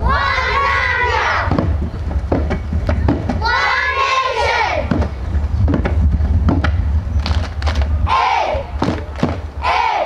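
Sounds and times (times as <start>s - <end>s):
children's voices and crowd: 0.0s - 2.1s, 3.0s - 6.0s, 7.9s - 10.0s
short thumps: 1.4s - 3.4s, 4.8s - 7.9s.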